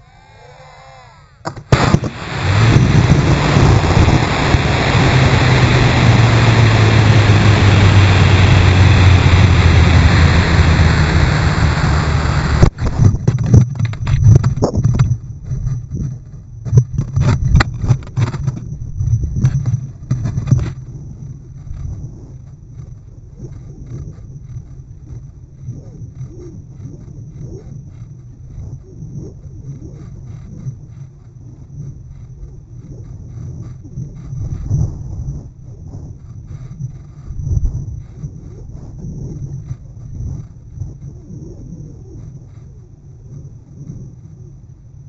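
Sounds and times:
rocket motor burning rush: 0:00.0 - 0:13.7
rocket motor igniting crack: 0:01.4 - 0:14.6
wind buffeting microphone: 0:01.7 - 0:15.2.

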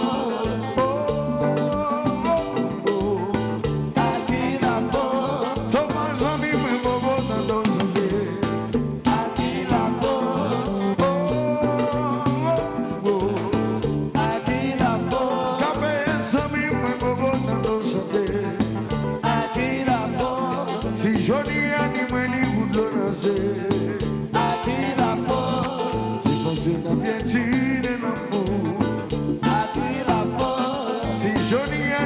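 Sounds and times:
bass: 0:00.0 - 0:32.0
congas: 0:00.0 - 0:32.0
drum kit: 0:00.0 - 0:32.0
electric guitars: 0:00.0 - 0:32.0
keyboards: 0:00.0 - 0:32.0
man singing lead: 0:00.0 - 0:32.0.

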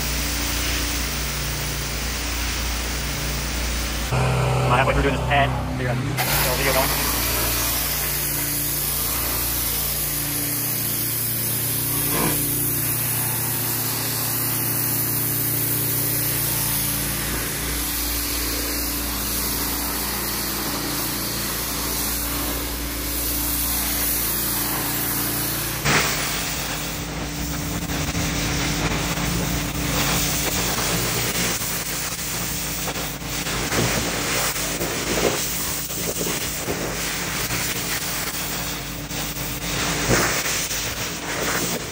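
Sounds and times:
machine humming: 0:00.0 - 0:31.2
pressure washer spray hissing: 0:00.0 - 0:41.9.

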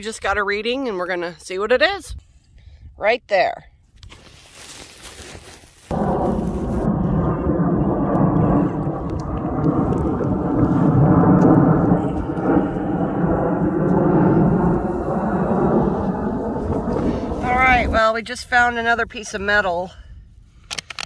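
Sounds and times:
jet aircraft rumble overhead: 0:05.9 - 0:18.9.

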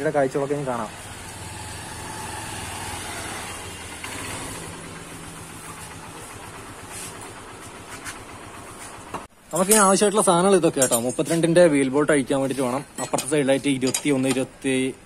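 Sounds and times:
motorcycle engine idling: 0:01.0 - 0:09.3.

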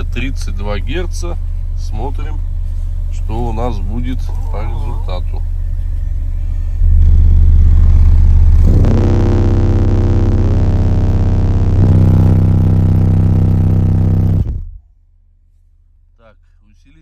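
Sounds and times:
subwoofer playing deep test tone: 0:00.0 - 0:15.0
buzzing overtones: 0:05.9 - 0:14.9.

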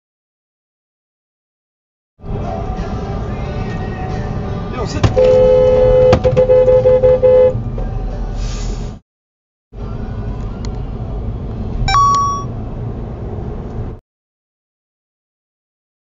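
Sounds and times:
road and engine rumble: 0:02.2 - 0:09.0, 0:09.7 - 0:14.0
car horn honking: 0:05.1 - 0:07.6.

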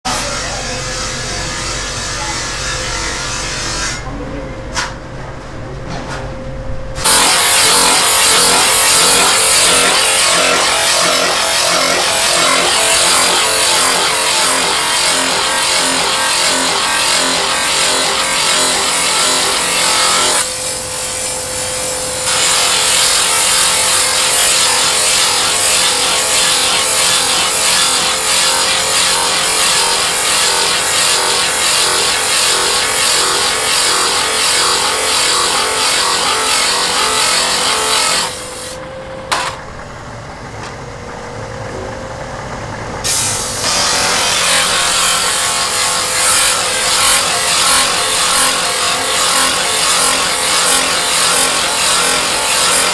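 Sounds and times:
grinding wheel rasping on steel: 0:07.1 - 0:20.5, 0:22.2 - 0:38.6, 0:43.1 - 0:52.9.

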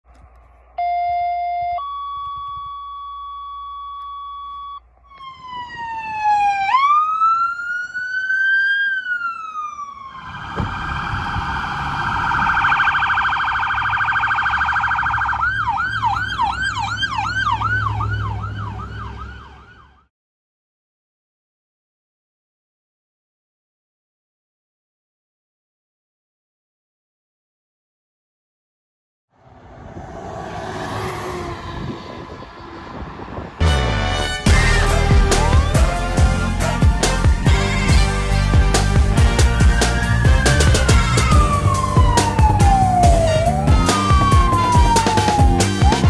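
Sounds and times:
engine rumble: 0:00.0 - 0:05.5, 0:29.4 - 0:46.0
short steady siren tones: 0:00.8 - 0:20.1, 0:39.6 - 0:46.0
electronic sirens wailing: 0:04.4 - 0:20.1, 0:30.2 - 0:46.0.

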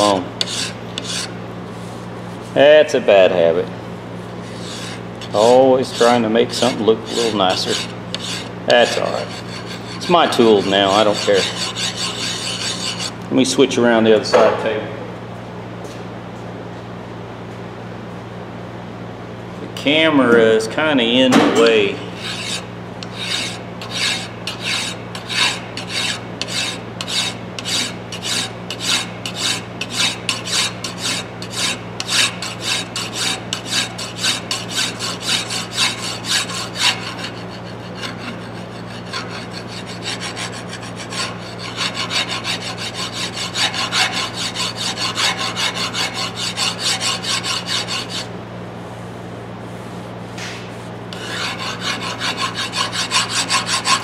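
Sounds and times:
file rasping on steel: 0:00.0 - 0:01.3, 0:04.4 - 0:13.2, 0:22.1 - 0:48.3, 0:51.1 - 0:54.0.

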